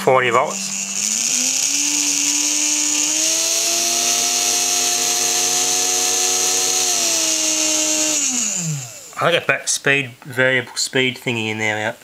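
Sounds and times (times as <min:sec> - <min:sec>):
small electric motor whining: 0:00.0 - 0:09.3.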